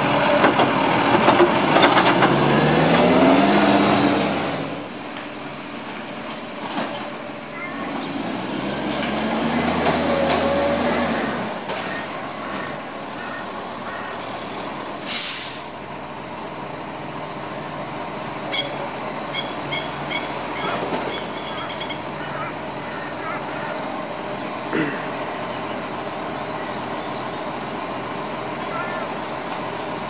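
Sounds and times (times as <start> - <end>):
truck diesel engine running: 0.0 - 30.0
bird calling sharp notes: 7.5 - 8.2, 11.1 - 15.1, 18.4 - 24.4, 28.6 - 29.3
air brakes hissing: 12.7 - 15.8.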